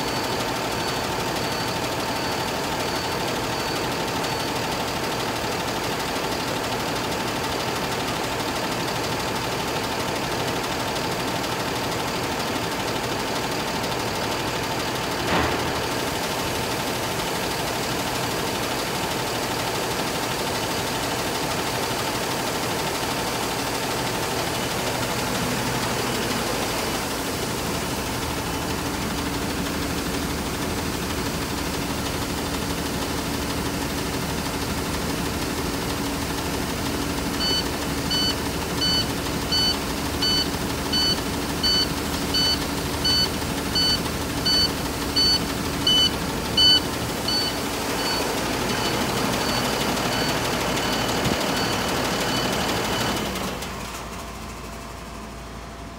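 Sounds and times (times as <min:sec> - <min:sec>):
high electronic beep: 0:00.0 - 0:04.5, 0:37.4 - 0:53.1
diesel engine idling: 0:00.0 - 0:55.9.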